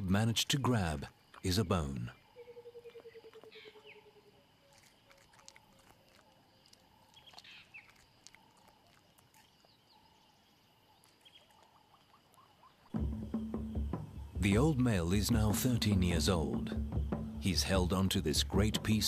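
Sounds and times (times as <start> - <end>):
bird chirps: 0.0 - 4.9, 9.3 - 19.0
high insect drone: 12.9 - 19.0.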